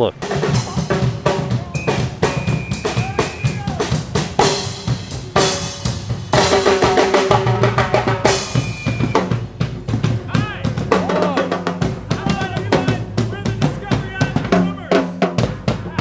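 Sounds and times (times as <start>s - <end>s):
held pitched notes: 0.0s - 16.0s
hand drums and drum kit: 0.2s - 16.0s.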